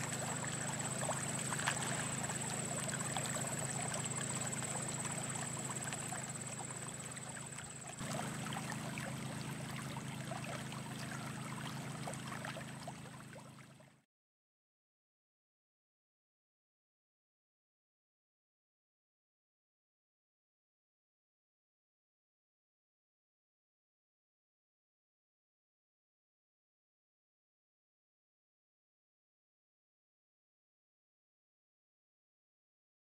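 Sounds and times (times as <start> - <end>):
water gushing onto grass: 0.0 - 12.8
small pump engine humming: 0.0 - 14.0.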